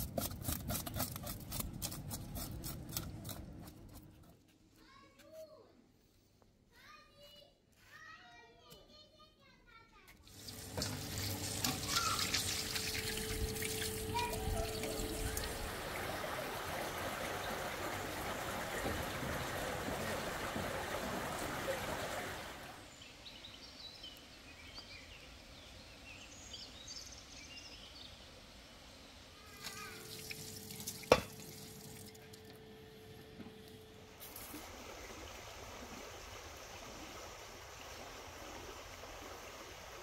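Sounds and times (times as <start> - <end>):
water running: 10.2 - 22.8, 29.4 - 32.8.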